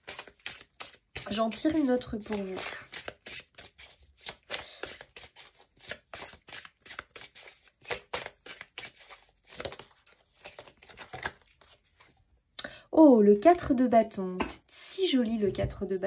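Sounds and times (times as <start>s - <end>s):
cards being shuffled: 0.0s - 12.2s.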